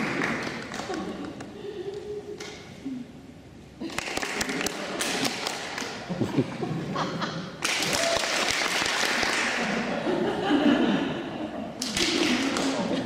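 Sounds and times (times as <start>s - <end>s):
audience clapping: 0.0s - 1.4s, 3.8s - 6.2s, 7.6s - 9.9s, 11.8s - 13.0s.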